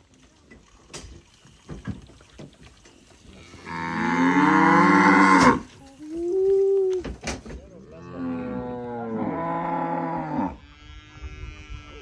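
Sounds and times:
cow mooing: 3.4s - 5.7s, 8.0s - 12.0s.

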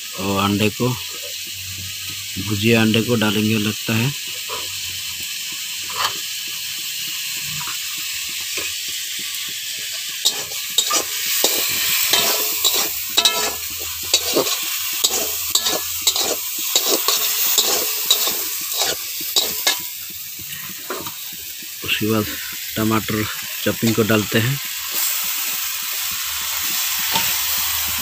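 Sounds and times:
potatoes sizzling in oil: 0.0s - 28.0s
spatula clinking and scraping pan: 9.9s - 21.4s, 27.0s - 28.0s.

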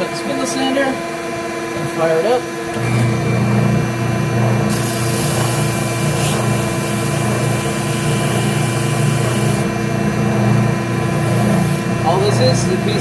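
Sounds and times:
spindle sander humming: 2.7s - 13.0s.

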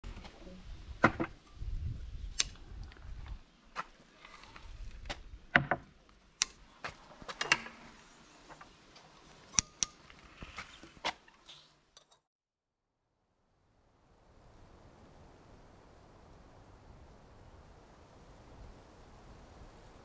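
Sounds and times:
wooden shutters knocking: 1.0s - 1.4s, 5.5s - 5.9s.

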